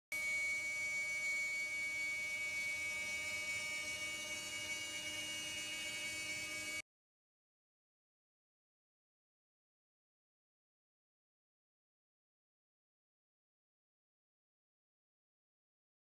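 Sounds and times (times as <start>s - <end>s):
router spindle whining: 0.2s - 6.8s.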